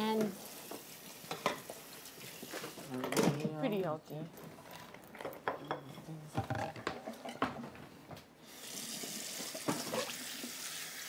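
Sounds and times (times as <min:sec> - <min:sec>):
water running into sink: 0:00.0 - 0:02.9, 0:08.4 - 0:11.0
dishes and utensils clattering: 0:01.2 - 0:03.8, 0:04.4 - 0:07.8, 0:09.4 - 0:10.2.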